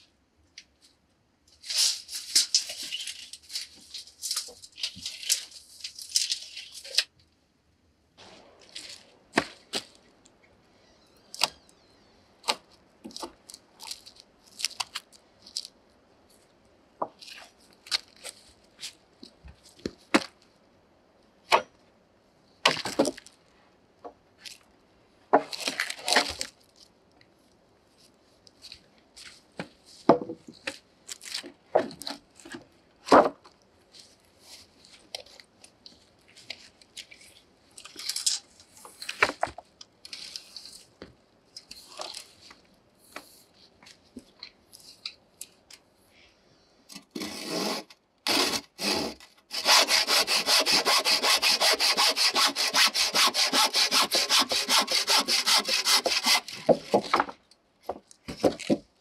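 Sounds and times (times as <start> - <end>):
boards scraping and rustling: 47.0 - 58.9.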